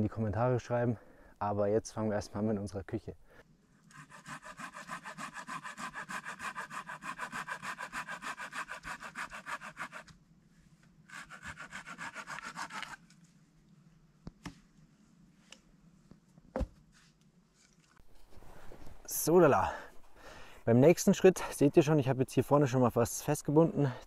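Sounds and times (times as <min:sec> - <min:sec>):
hand saw cutting wood: 0:03.9 - 0:10.2, 0:11.0 - 0:13.0.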